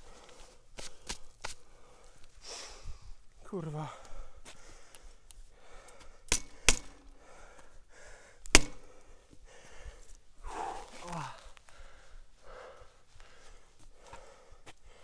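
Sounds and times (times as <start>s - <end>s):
person breathing hard: 0.0s - 3.2s, 3.9s - 15.0s
person groaning: 10.5s - 11.5s.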